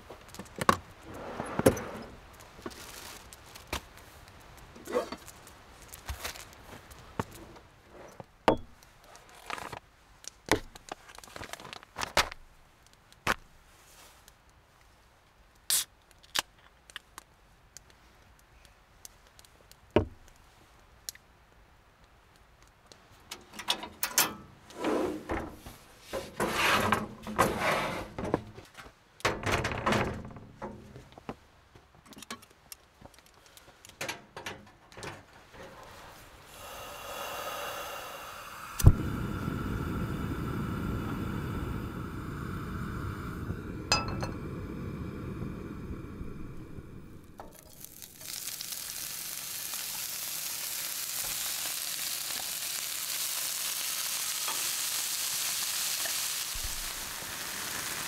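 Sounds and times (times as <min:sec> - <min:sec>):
camp stove clattering and rustling: 0:04.7 - 0:09.8, 0:23.2 - 0:31.4, 0:32.0 - 0:36.4, 0:43.9 - 0:44.5.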